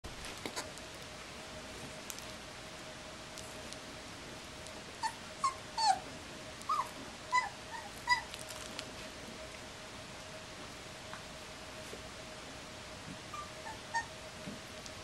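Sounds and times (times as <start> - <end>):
puppy whimpering: 5.0 - 6.0, 6.7 - 8.3, 13.3 - 14.1.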